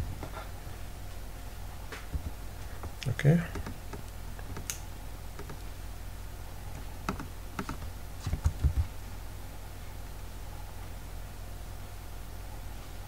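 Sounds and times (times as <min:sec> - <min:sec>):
steady low hum: 0:00.0 - 0:13.0
computer keyboard typing: 0:03.4 - 0:05.6, 0:06.8 - 0:08.8.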